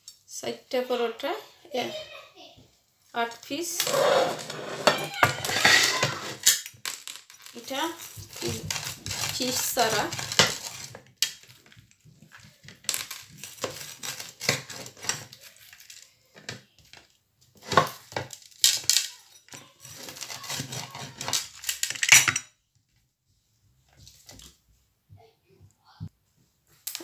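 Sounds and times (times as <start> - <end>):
flatbread crackling and crunching: 7.7 - 16.3, 19.8 - 22.1.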